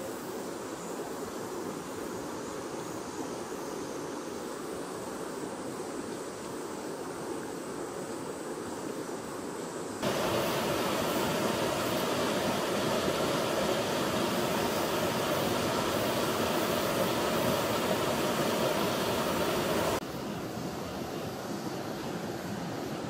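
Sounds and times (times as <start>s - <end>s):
faint steady water hiss: 0.0s - 23.0s
water rushing over rocks: 10.0s - 20.0s.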